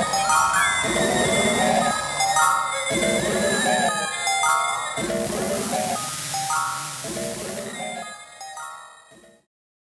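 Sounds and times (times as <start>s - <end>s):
high stepping music notes: 5.0s - 8.0s.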